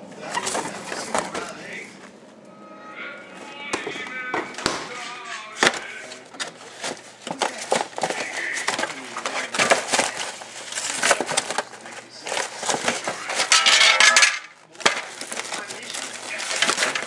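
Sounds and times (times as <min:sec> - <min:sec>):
cardboard crinkling: 0:00.2 - 0:01.8, 0:05.6 - 0:17.0.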